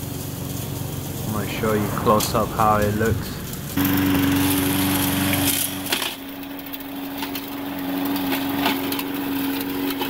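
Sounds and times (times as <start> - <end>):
lawn mower engine running: 0.0 - 10.0.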